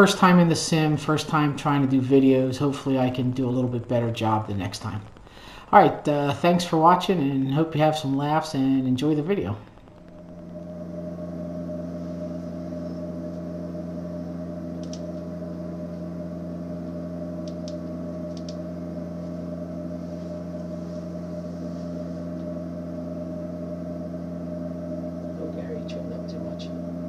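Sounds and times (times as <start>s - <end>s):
aircraft engine drone: 0.0s - 27.0s
faint clicks: 14.8s - 15.3s, 16.9s - 18.6s.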